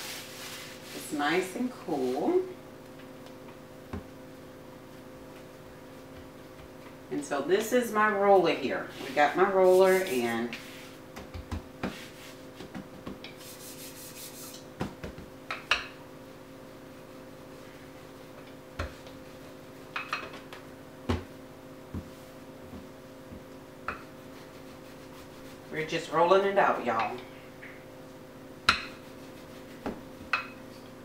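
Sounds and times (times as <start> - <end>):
faint steady hum: 0.0 - 31.0
rolling pin rolling dough: 8.9 - 15.3, 21.1 - 27.1, 28.7 - 30.6.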